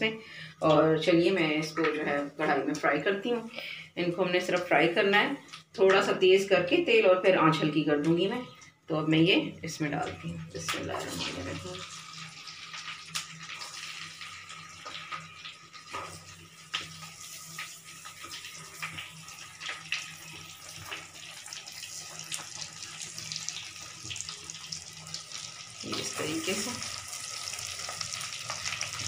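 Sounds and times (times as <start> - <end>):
hot oil sizzling and popping: 9.9 - 29.0.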